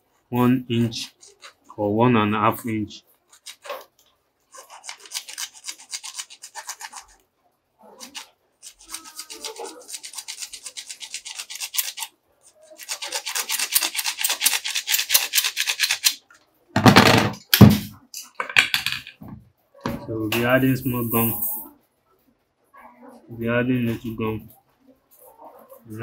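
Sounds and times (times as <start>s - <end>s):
hacksaw cutting plastic pipe: 12.8s - 16.2s.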